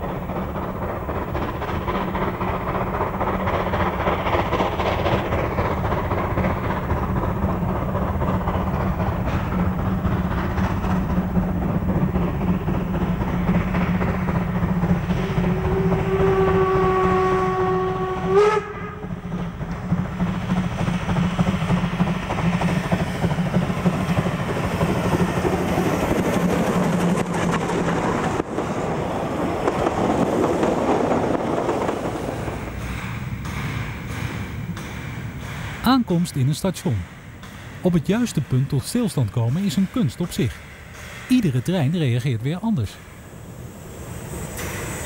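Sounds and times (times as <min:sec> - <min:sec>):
steam locomotive running: 0:00.0 - 0:45.0
steam whistle blast: 0:15.3 - 0:19.0.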